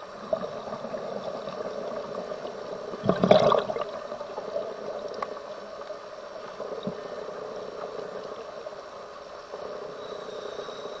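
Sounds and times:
diver breathing through regulator: 0:09.5 - 0:11.0.

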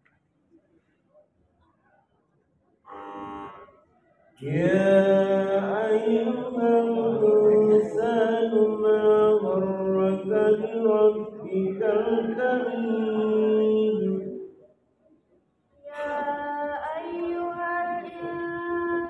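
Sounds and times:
woman chanting recitation: 0:09.6 - 0:14.2, 0:15.8 - 0:19.0.

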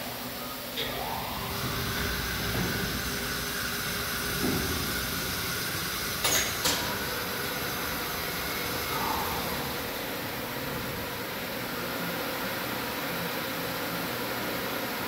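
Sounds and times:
crane motor whining: 0:00.8 - 0:12.1.

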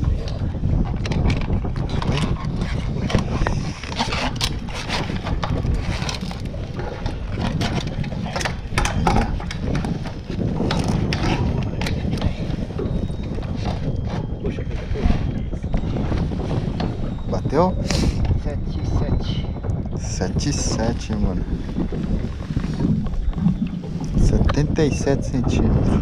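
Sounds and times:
wind buffeting microphone: 0:00.0 - 0:26.0
handling knocks and scrapes: 0:01.2 - 0:15.3.

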